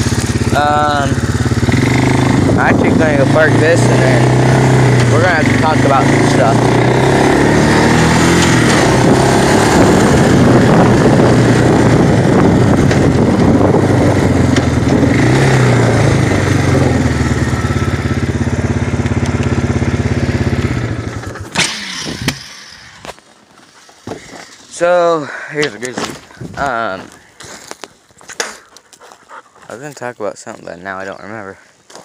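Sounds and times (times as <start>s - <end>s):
atv engine idling: 0.0s - 23.2s.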